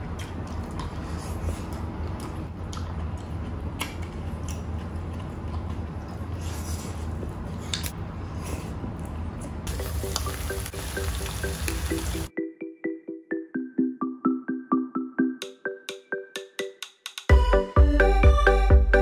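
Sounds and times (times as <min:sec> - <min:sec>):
wet chewing: 0:00.0 - 0:08.0
music: 0:09.7 - 0:19.0.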